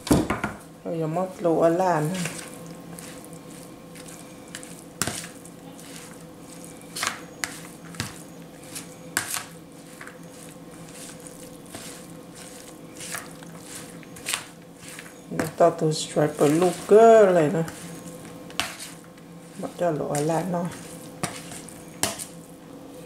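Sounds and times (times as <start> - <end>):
spoon stirring wet mixture: 1.4 - 22.5.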